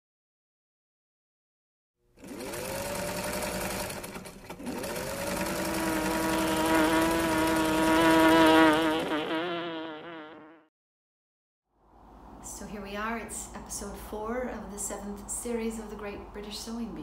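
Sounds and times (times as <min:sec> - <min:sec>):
sewing machine motor whining: 0:02.2 - 0:09.1.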